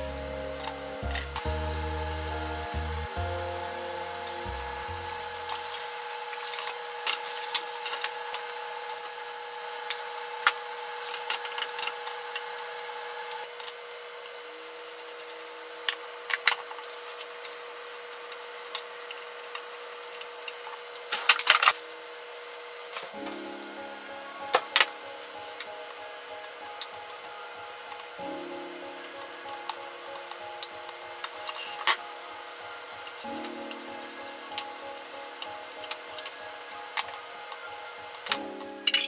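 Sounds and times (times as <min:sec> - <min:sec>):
rice hissing in frying pan: 0:00.0 - 0:11.0, 0:14.5 - 0:20.2.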